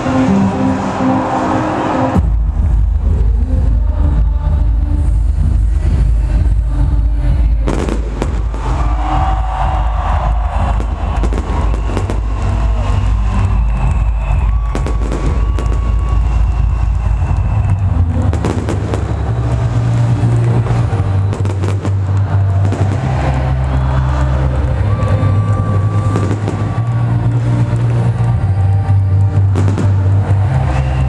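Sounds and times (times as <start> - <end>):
electronic dance music: 0.0 - 31.0
fireworks bangs and crackles: 7.5 - 31.0.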